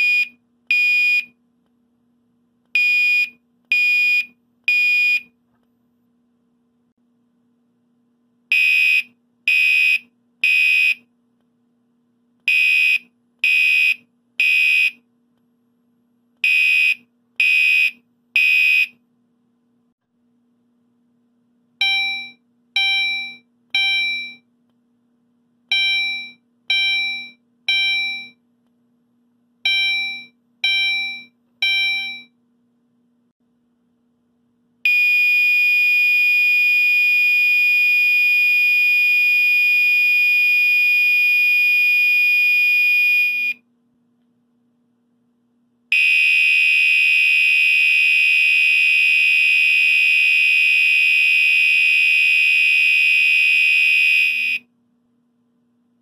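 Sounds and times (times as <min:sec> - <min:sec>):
fire alarm horn beeping: 0:45.9 - 0:54.6
fire alarm steady tone: 0:45.9 - 0:54.6.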